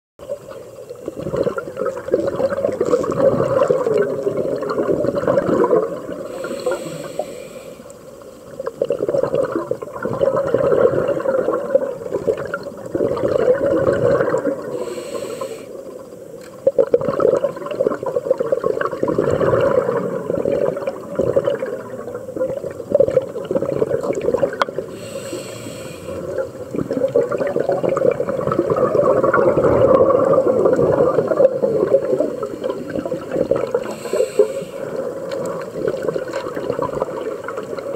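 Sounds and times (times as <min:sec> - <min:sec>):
bubbles gurgling underwater: 0:00.2 - 0:07.6, 0:08.2 - 0:15.0, 0:15.8 - 0:37.9
regulator inhalation hiss: 0:06.2 - 0:08.2, 0:14.7 - 0:15.9, 0:24.8 - 0:26.4, 0:33.8 - 0:35.3.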